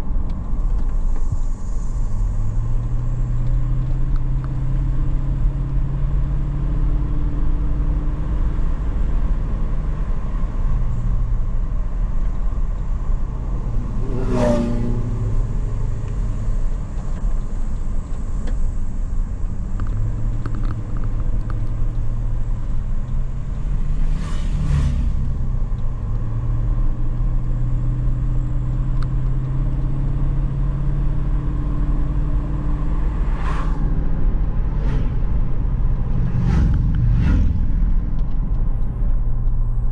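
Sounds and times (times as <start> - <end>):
vehicle engine and road noise: 0.0 - 39.9
vehicle passing by: 13.2 - 16.7, 23.3 - 25.5, 32.4 - 39.8.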